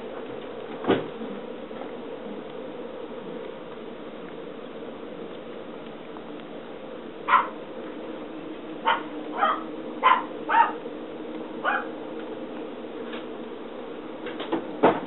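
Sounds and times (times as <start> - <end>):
puppies yipping: 7.3 - 7.6, 8.8 - 10.8, 11.6 - 11.9.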